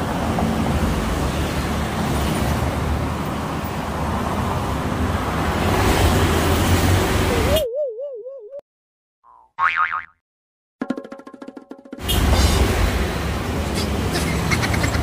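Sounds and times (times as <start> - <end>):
street traffic passing: 0.0 - 8.6, 11.9 - 15.0
cartoon boing sound effect: 9.3 - 10.2.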